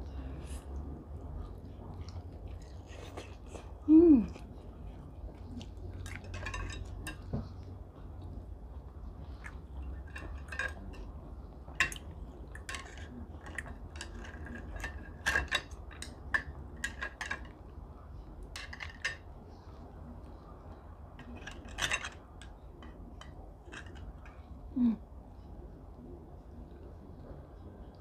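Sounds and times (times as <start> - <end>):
low steady hum: 0.0 - 28.0
chopsticks and spoon clinking on bowl: 5.4 - 7.7, 9.4 - 17.7, 18.4 - 19.3, 21.2 - 24.5.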